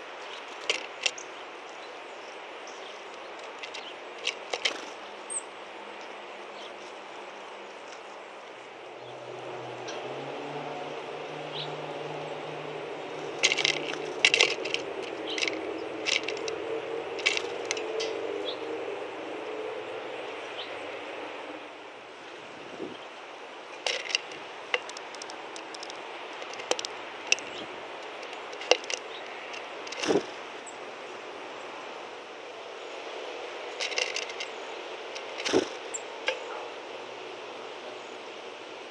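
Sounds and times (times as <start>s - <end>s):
birds pecking seeds on wood: 0.0s - 8.6s, 11.4s - 18.6s, 22.8s - 37.8s
low engine rumble: 0.0s - 38.9s.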